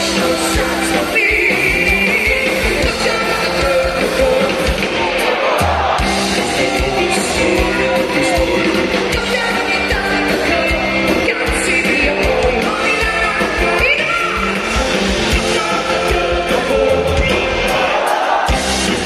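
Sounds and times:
live pop-rock band playing: 0:00.0 - 0:19.0
woman singing: 0:09.1 - 0:14.6.

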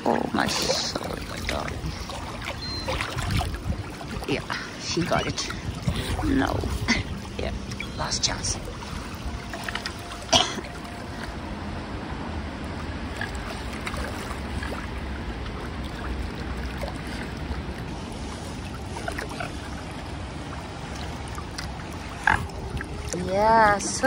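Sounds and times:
wind buffeting microphone: 0:00.0 - 0:09.5
water lapping at shore: 0:00.0 - 0:24.0.

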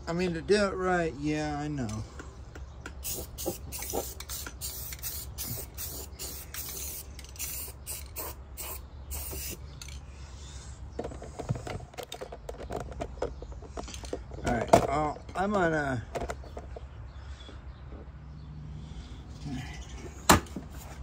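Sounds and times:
spray paint can hissing: 0:03.0 - 0:09.6.

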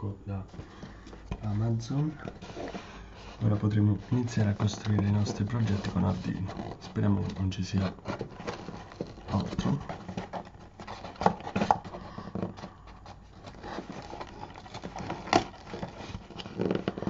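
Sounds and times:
tape tearing: 0:13.4 - 0:17.0.

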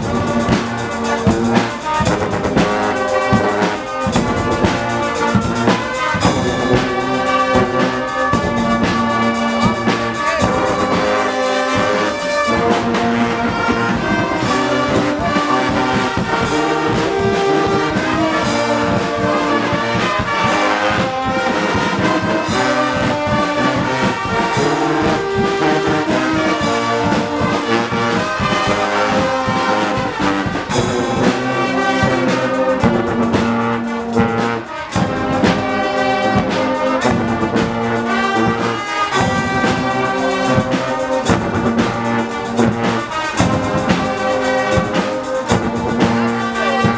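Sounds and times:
bass drum beat: 0:00.0 - 0:46.9
brass band playing: 0:00.0 - 0:46.9
drum kit with cymbals: 0:00.0 - 0:46.9.

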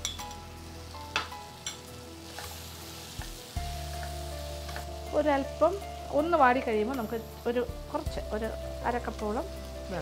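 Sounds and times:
food sizzling in a frying pan: 0:00.0 - 0:10.0.

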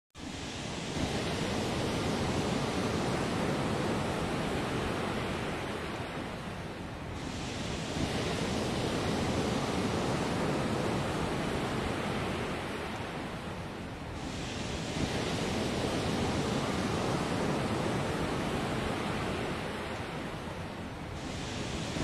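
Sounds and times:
steady rushing hiss: 0:07.1 - 0:22.0.

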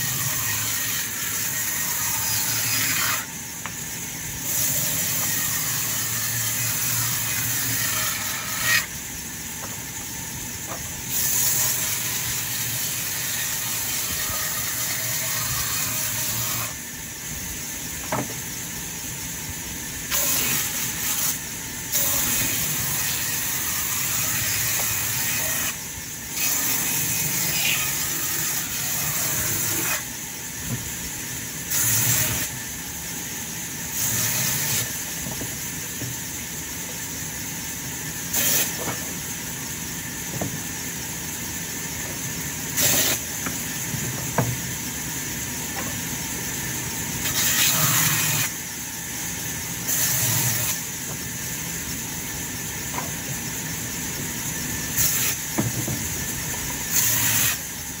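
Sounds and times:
saw blade cutting wood: 0:00.0 - 0:03.8, 0:04.4 - 0:16.8, 0:20.1 - 0:25.8, 0:26.4 - 0:30.2, 0:31.6 - 0:32.6, 0:33.8 - 0:37.0, 0:38.1 - 0:40.9, 0:42.0 - 0:44.7, 0:47.2 - 0:48.6, 0:49.8 - 0:51.4, 0:54.5 - 0:57.7
band saw running: 0:00.0 - 0:18.7, 0:20.0 - 0:58.0.

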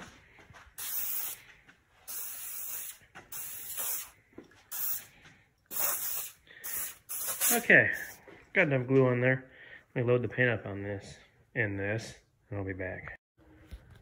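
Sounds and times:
aerosol spray hissing: 0:00.8 - 0:01.4, 0:02.1 - 0:05.1, 0:05.7 - 0:08.2.

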